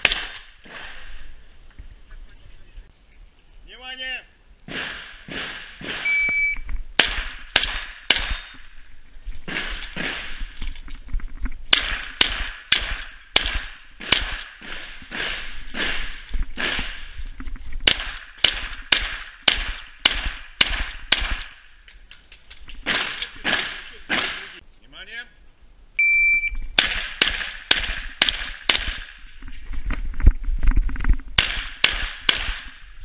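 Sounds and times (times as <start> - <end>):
rapid shotgun shots: 0.0 - 1.1, 4.7 - 6.1, 7.0 - 8.6, 9.5 - 10.5, 11.7 - 17.1, 17.8 - 21.6, 22.8 - 24.6, 26.8 - 29.2, 31.4 - 32.8
shot timer beep: 6.0 - 6.6, 26.0 - 26.6.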